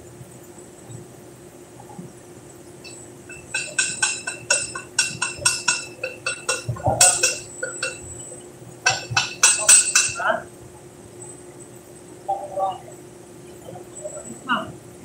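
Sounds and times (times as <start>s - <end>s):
metal tool tapping on steel: 2.8s - 8.2s, 8.8s - 10.4s.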